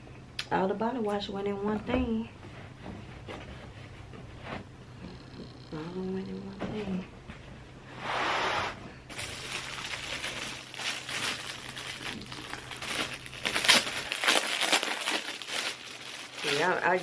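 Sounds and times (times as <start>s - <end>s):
plastic packaging crinkling: 9.1s - 17.0s.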